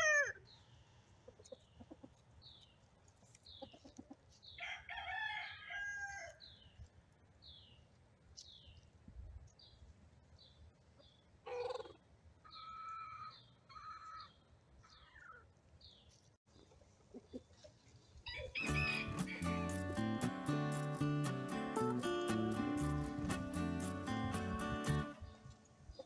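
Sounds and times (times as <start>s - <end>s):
distant rooster crowing: 4.6s - 6.4s, 18.3s - 19.7s.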